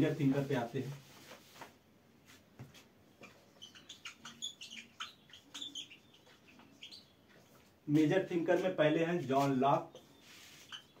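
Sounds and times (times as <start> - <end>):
marker squeaking on whiteboard: 3.1 - 7.8, 9.4 - 11.0
board duster wiping: 8.6 - 10.9.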